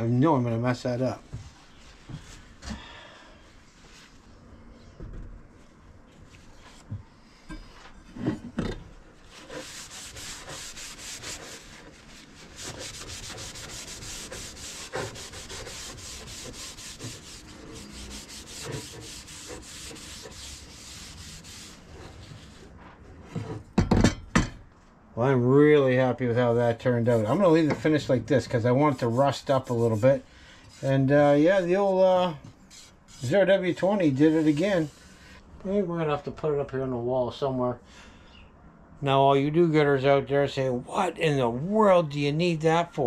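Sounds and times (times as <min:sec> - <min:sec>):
paper towel scrubbing wood: 0:09.2 - 0:22.9, 0:27.0 - 0:35.2.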